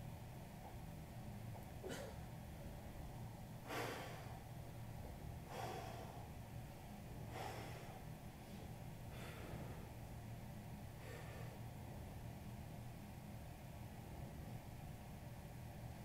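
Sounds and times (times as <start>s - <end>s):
man breathing hard: 3.6s - 4.5s, 5.4s - 6.4s, 7.2s - 10.0s, 10.9s - 11.7s.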